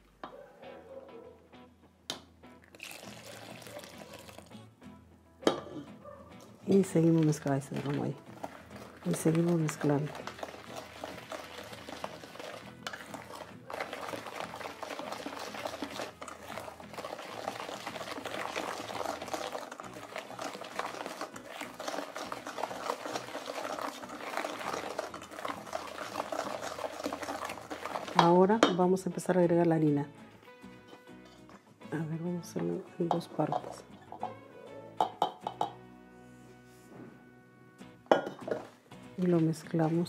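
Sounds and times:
whisk beating batter in bowl: 0:07.0 - 0:28.7.

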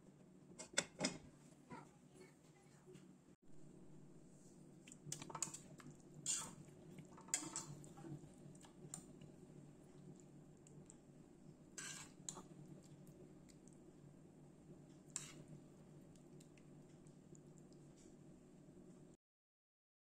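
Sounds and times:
faint steady hum: 0:00.0 - 0:19.2
metal spoon scraping a pot: 0:06.2 - 0:06.6, 0:07.2 - 0:07.8, 0:11.8 - 0:12.4, 0:15.2 - 0:15.4.

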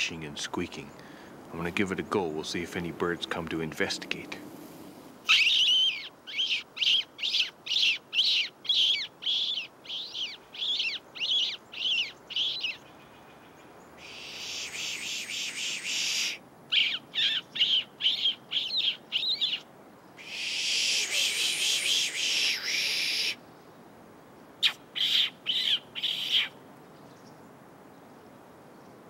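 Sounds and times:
pishing hiss: 0:14.0 - 0:16.4, 0:20.2 - 0:23.4.

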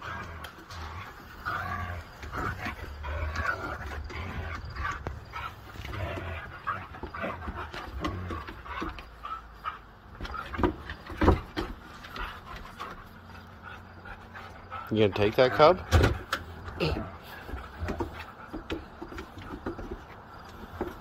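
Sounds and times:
dogs whining yipping and growling: 0:00.0 - 0:15.7.

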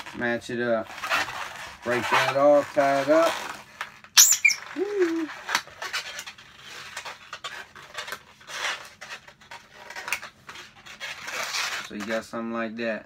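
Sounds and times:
balloons squeaking: 0:00.9 - 0:07.0.

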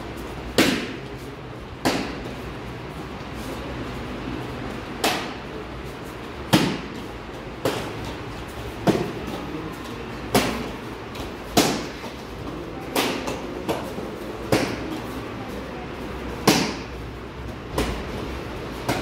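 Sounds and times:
kicks slapping a kicking paddle: 0:00.5 - 0:01.1, 0:01.8 - 0:02.4, 0:06.5 - 0:09.4, 0:10.3 - 0:12.2, 0:12.8 - 0:15.0, 0:16.4 - 0:16.9, 0:17.7 - 0:19.0.

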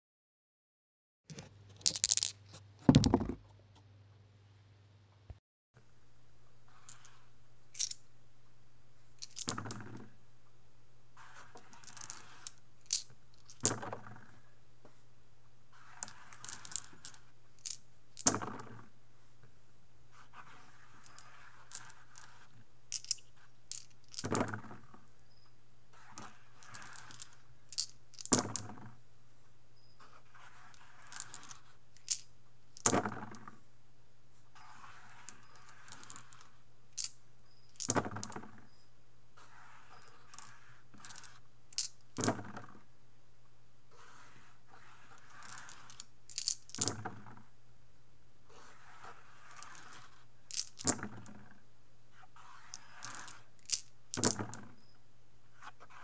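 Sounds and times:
dice clattering in a felt box: 0:01.7 - 0:03.4, 0:06.8 - 0:08.0, 0:09.2 - 0:10.0, 0:11.3 - 0:14.0, 0:15.8 - 0:18.7, 0:20.4 - 0:24.8, 0:26.0 - 0:28.8, 0:30.4 - 0:33.2, 0:35.2 - 0:38.4, 0:40.0 - 0:42.5, 0:45.2 - 0:47.2, 0:49.5 - 0:51.3, 0:52.6 - 0:54.8
dice rattling as collected: 0:01.8 - 0:03.3, 0:06.8 - 0:08.0, 0:09.2 - 0:09.9, 0:11.7 - 0:13.9, 0:16.0 - 0:18.6, 0:20.9 - 0:24.6, 0:26.0 - 0:28.7, 0:30.8 - 0:33.1, 0:35.4 - 0:36.4, 0:37.0 - 0:38.3, 0:41.0 - 0:42.4, 0:45.2 - 0:47.2, 0:49.5 - 0:51.2, 0:52.7 - 0:54.7
steady low hum: 0:05.8 - 0:56.0.

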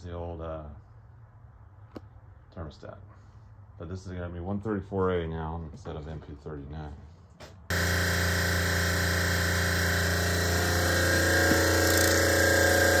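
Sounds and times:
refrigeration compressor humming: 0:07.7 - 0:13.0.

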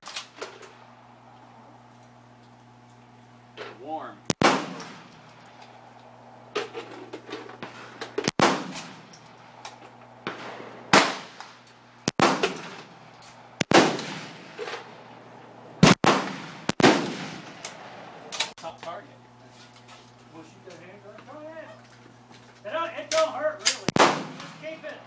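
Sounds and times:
gunshots with echo: 0:04.4 - 0:05.0, 0:12.1 - 0:12.8, 0:15.8 - 0:18.1, 0:23.9 - 0:24.6.

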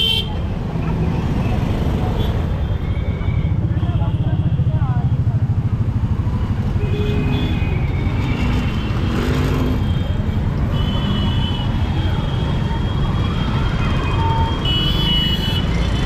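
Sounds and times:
traffic passing close by: 0:00.0 - 0:16.0.

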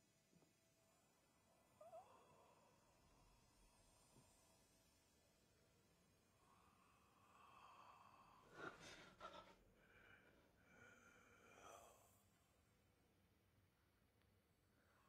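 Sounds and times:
person breathing and sighing: 0:08.3 - 0:12.1.

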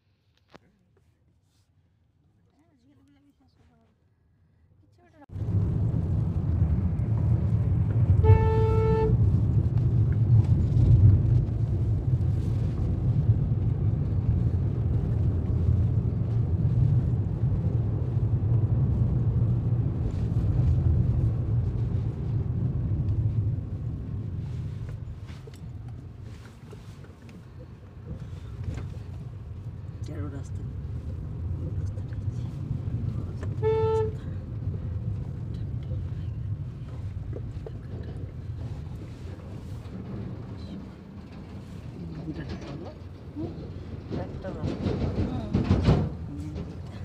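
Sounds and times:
car road and engine rumble: 0:04.3 - 0:47.0
car horn: 0:08.1 - 0:09.3, 0:33.4 - 0:34.3.

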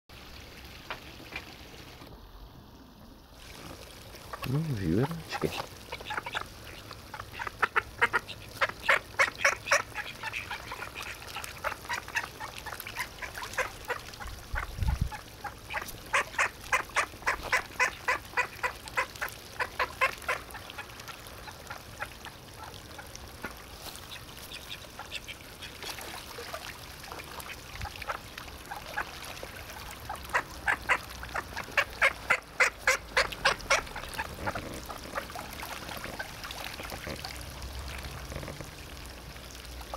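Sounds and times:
ducks quacking: 0:04.2 - 0:25.9, 0:30.0 - 0:36.9.

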